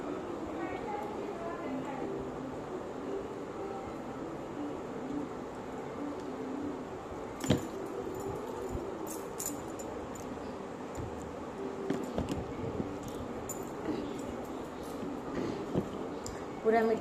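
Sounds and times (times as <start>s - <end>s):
steady background hiss: 0.0s - 17.0s
glass bangles clinking: 7.4s - 11.2s, 12.9s - 15.3s.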